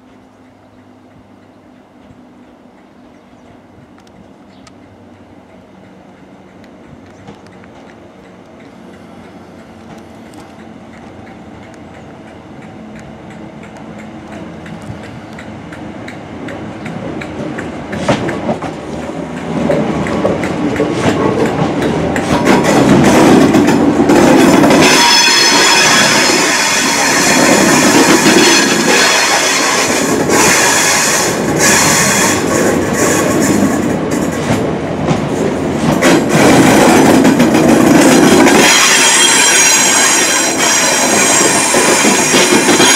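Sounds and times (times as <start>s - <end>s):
electric train passing: 0.0s - 42.9s
train wheels clattering over rail joints: 4.8s - 42.9s
high-pitched squeal from train: 24.4s - 33.9s, 38.0s - 42.9s.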